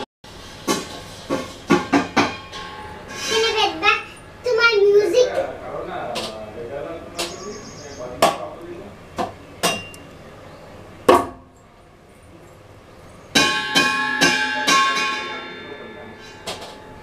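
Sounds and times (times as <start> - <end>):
sharp knocks: 0.6 - 2.8, 8.2 - 8.5, 11.1 - 11.5, 13.3 - 16.9
metal cookware being struck: 1.7 - 4.0, 9.6 - 10.0, 13.3 - 17.0.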